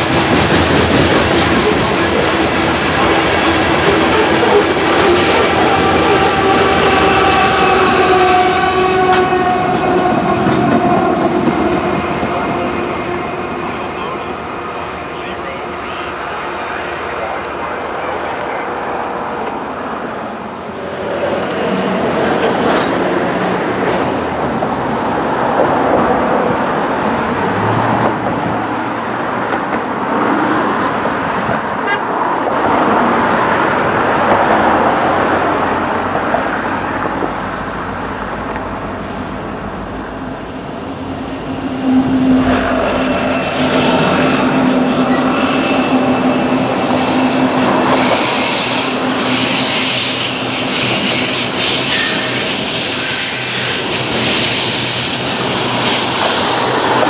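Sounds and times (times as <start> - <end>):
rumbling trains and traffic: 0.0 - 57.0
locomotive horn chord: 4.5 - 11.1.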